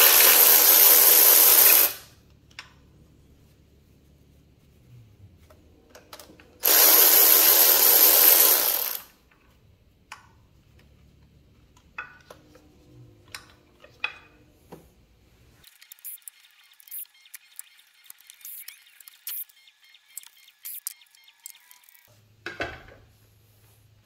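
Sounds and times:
shop vac sucking air: 0.0s - 2.1s, 6.6s - 9.1s.

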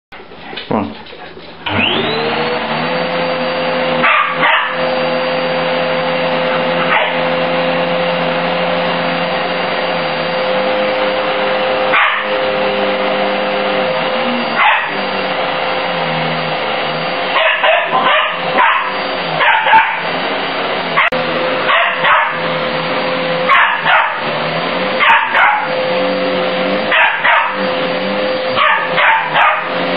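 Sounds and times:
vacuum cleaner motor: 1.6s - 29.9s
puppy barking and yapping: 4.0s - 5.0s, 6.3s - 7.4s, 11.8s - 12.4s, 14.5s - 15.0s, 17.3s - 20.1s, 21.0s - 22.6s, 23.4s - 24.3s, 25.0s - 25.8s, 26.9s - 27.7s, 28.5s - 29.9s.

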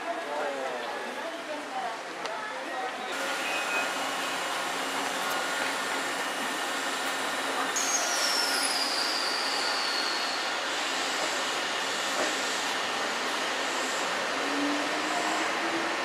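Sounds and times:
electric train running on rails: 0.0s - 16.0s
high train wheel squeal: 3.2s - 4.7s, 5.4s - 15.7s.

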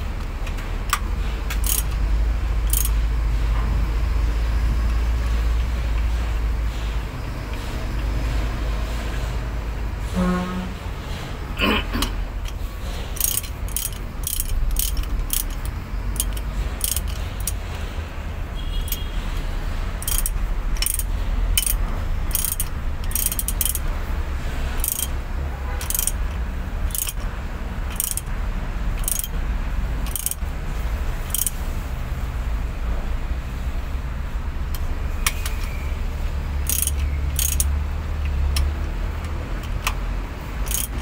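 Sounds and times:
ratchet wrench clicking: 0.0s - 3.1s, 12.4s - 17.9s, 18.7s - 29.4s, 30.0s - 30.5s, 31.1s - 31.7s, 34.7s - 35.8s, 36.5s - 41.0s.

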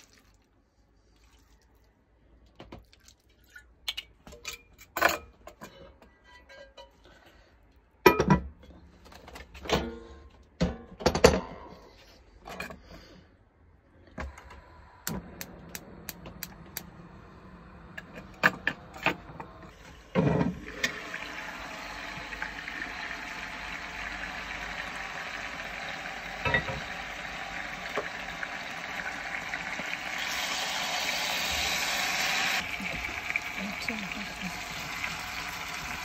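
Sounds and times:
pot simmering with steam hiss: 14.5s - 36.0s
pot lid clanking: 26.4s - 27.0s.

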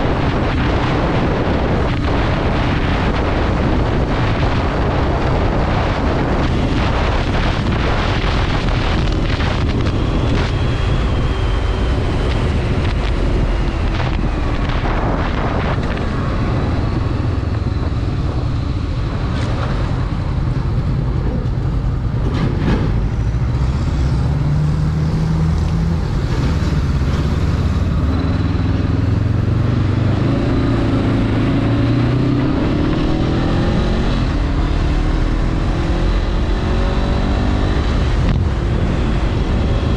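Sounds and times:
motorcycle engine: 0.0s - 39.9s
wind noise on microphone: 0.0s - 39.9s.

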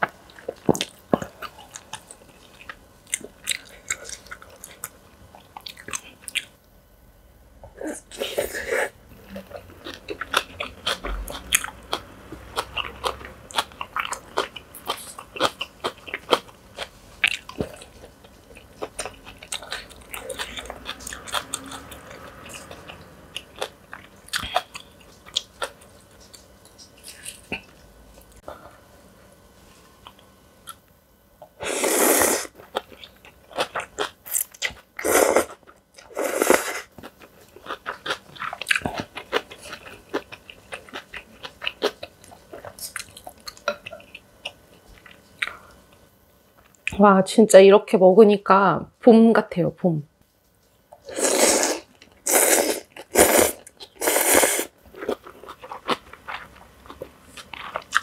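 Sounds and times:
chewing and crunching food: 0.0s - 6.6s, 9.2s - 28.4s, 32.5s - 46.0s, 51.8s - 58.0s.

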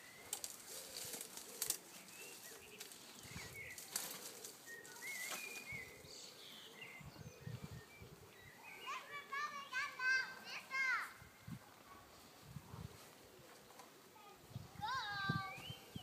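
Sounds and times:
twigs cracking: 0.0s - 5.7s
birds chirping: 0.0s - 12.2s, 13.2s - 16.0s
leaves and branches rustling: 0.0s - 16.0s.

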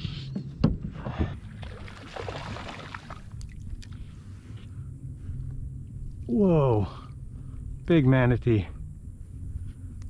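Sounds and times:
water lapping against kayak hull: 0.9s - 4.4s.

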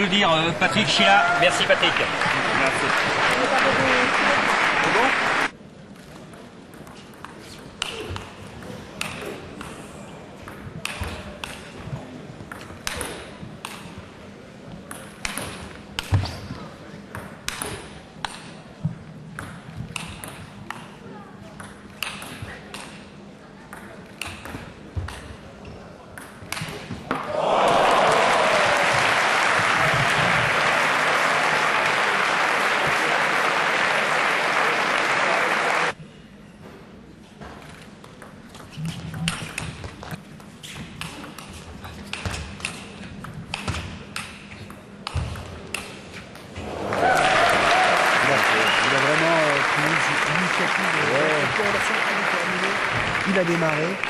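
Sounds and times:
audience applauding: 0.0s - 5.5s, 27.3s - 36.0s, 46.6s - 54.0s.

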